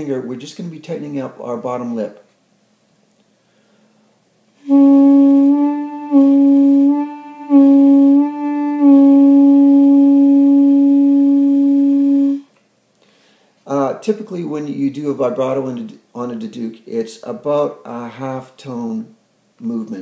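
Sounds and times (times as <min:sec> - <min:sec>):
duduk playing a held note: 0:04.6 - 0:12.5.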